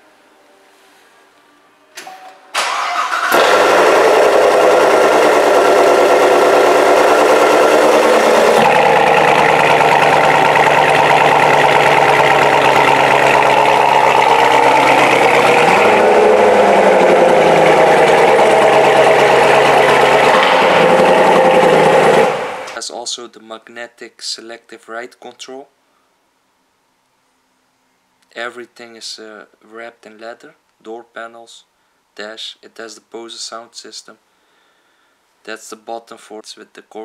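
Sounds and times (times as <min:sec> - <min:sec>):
car engine starting and idling: 0:02.5 - 0:22.8.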